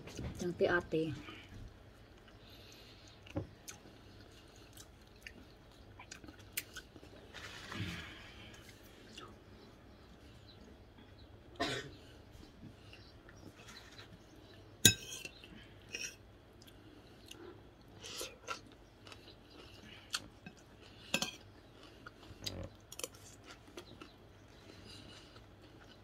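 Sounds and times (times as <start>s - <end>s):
person chewing: 1.7s - 9.7s, 15.4s - 26.0s
metal spoon clinking on plate: 14.8s - 15.4s.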